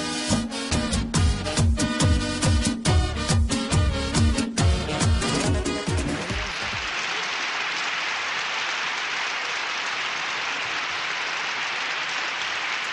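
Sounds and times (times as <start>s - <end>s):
crowd applauding: 5.2s - 12.9s.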